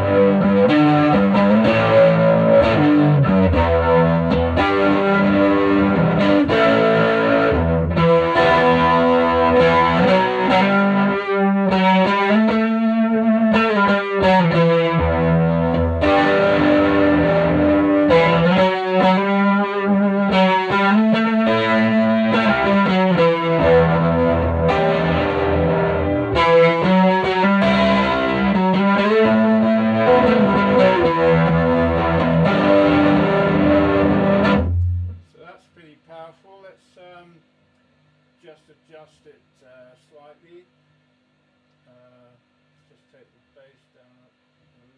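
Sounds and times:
electric guitar chords and notes: 0.0 - 35.3.

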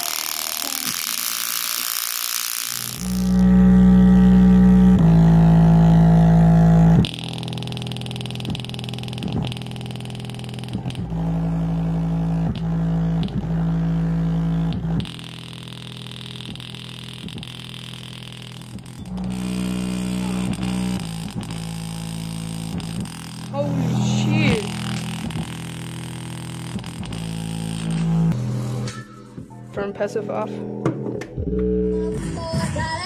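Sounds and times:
bass-heavy music on speaker: 3.1 - 7.5, 10.8 - 15.2, 19.1 - 22.0, 26.8 - 33.0.

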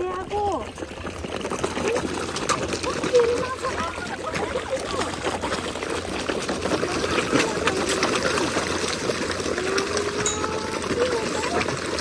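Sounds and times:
fish splashing at surface: 0.6 - 12.0.

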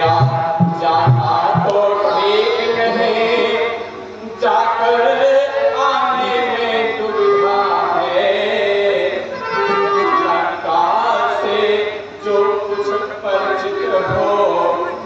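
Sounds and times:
musical accompaniment: 0.0 - 2.1
man chanting: 0.0 - 15.0.

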